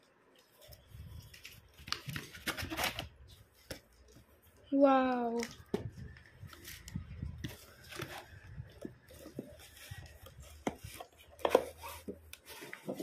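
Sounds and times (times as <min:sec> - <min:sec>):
cardboard rustling: 0:00.3 - 0:04.5, 0:05.1 - 0:13.0
wooden blocks scraping and sliding: 0:06.5 - 0:13.0.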